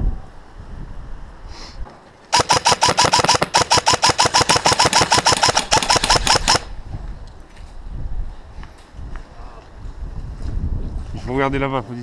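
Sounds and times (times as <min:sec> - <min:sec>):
airsoft rifle full-auto burst: 0:02.3 - 0:06.7.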